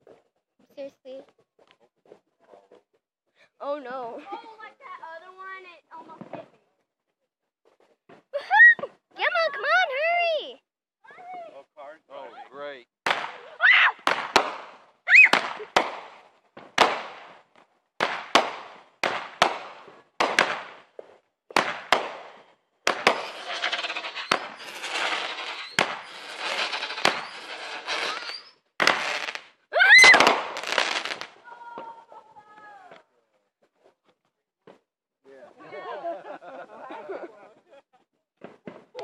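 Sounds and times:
fireworks banging: 13.0 - 32.0
fireworks crackling: 13.0 - 32.1.

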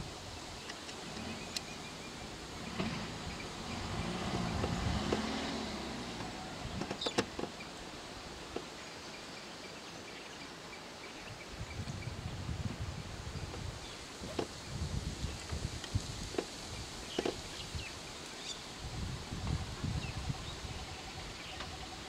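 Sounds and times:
vehicle engine running low: 0.0 - 8.6.

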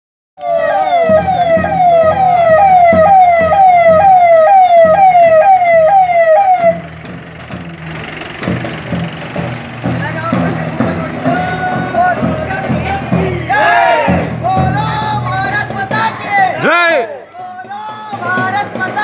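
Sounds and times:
electronic vehicle siren: 0.4 - 6.9
street noise: 0.4 - 19.0
vehicle engine running: 1.0 - 16.6.

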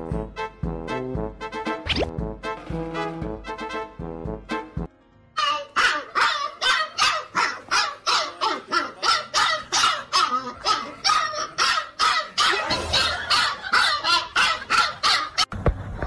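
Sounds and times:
dog barking rapidly: 5.4 - 15.5.

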